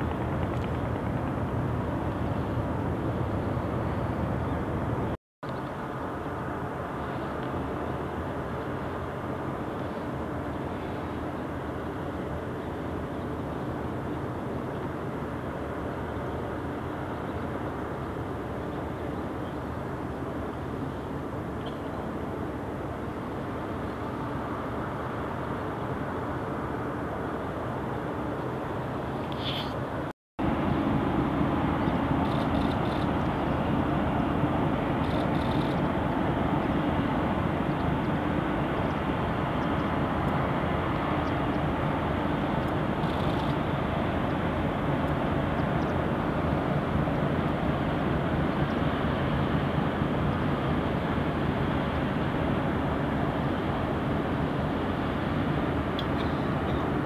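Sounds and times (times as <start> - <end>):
harbour ambience: 0.0 - 57.0.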